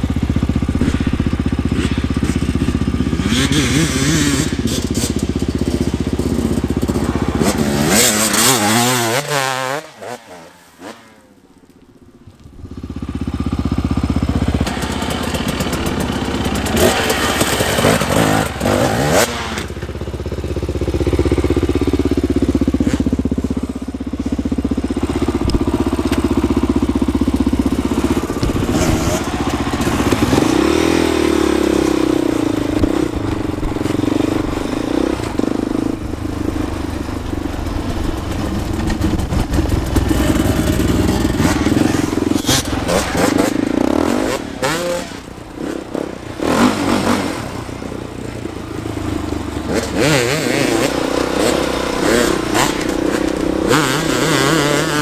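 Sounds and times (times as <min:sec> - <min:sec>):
motorcycle engine revving: 0:00.0 - 0:11.4, 0:12.3 - 0:55.0.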